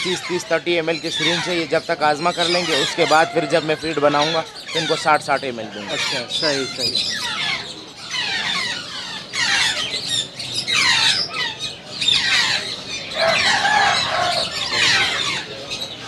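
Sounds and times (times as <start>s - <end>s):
parrot chicks squawking: 0.0s - 16.0s.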